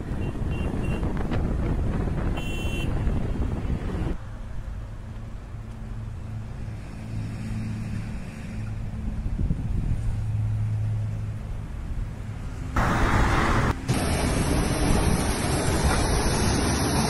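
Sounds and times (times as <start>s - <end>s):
wind buffeting microphone: 0.0s - 4.2s, 9.1s - 10.3s
diesel engine hum: 0.0s - 17.0s
road noise: 0.0s - 17.0s
vehicle horn toot: 0.1s - 1.1s, 2.4s - 3.0s.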